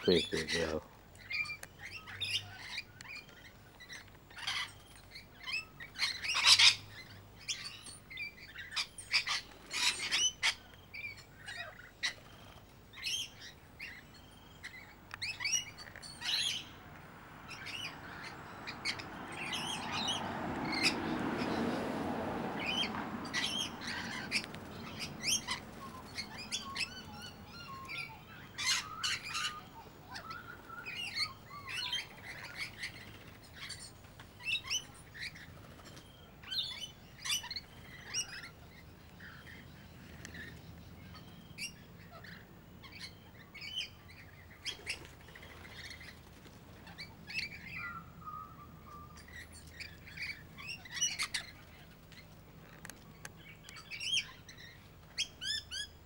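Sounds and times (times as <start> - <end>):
birds chirping and squawking: 0.0 - 56.0.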